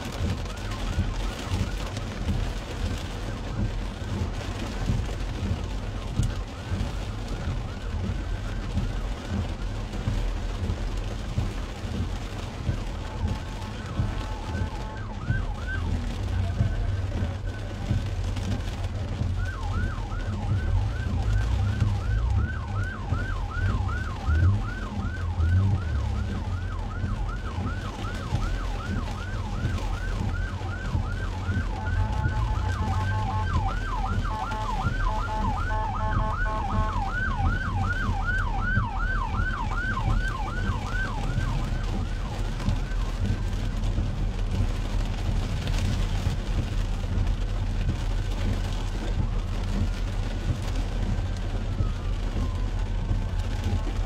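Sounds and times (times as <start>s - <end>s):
siren with stepped tones: 0.0s - 54.0s
siren yelping: 19.2s - 43.4s.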